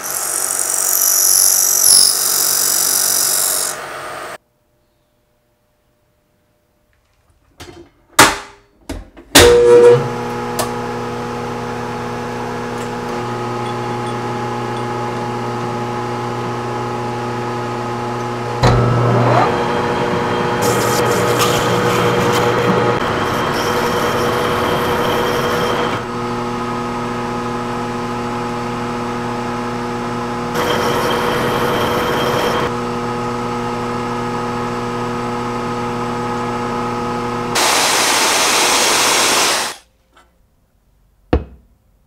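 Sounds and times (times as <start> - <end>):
metal lathe motor hum: 0.0 - 4.4, 11.8 - 26.8, 30.3 - 32.7.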